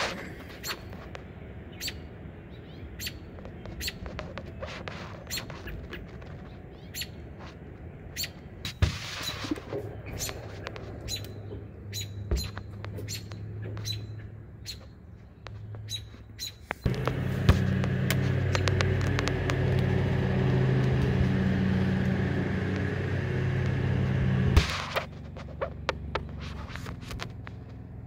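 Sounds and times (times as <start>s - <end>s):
steady low motor hum: 0.0s - 28.0s
songbird nestlings peeping: 10.0s - 20.4s
faint hum: 16.8s - 26.8s.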